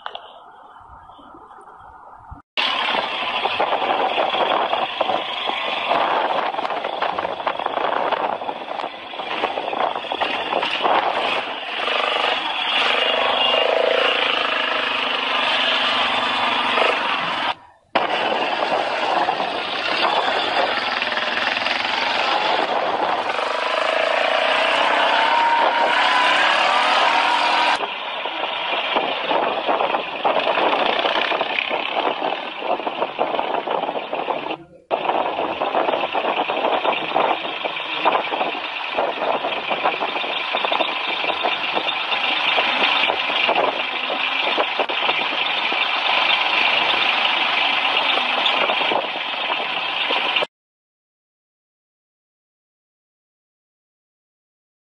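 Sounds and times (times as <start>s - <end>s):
rushing noise: 1.9s - 50.5s
quad bike engine revving: 9.1s - 32.8s, 35.3s - 50.0s.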